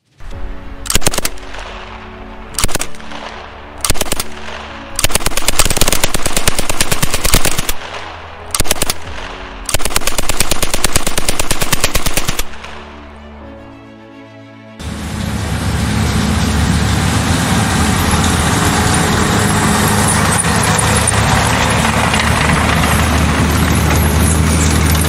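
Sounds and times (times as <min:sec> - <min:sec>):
machine-gun fire: 0:00.9 - 0:01.8, 0:02.6 - 0:12.7.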